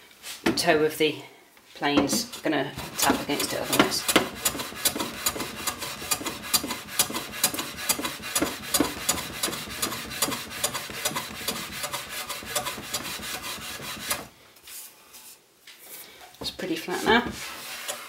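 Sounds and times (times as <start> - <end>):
hand plane shaving wood: 2.7 - 14.3, 17.2 - 18.0.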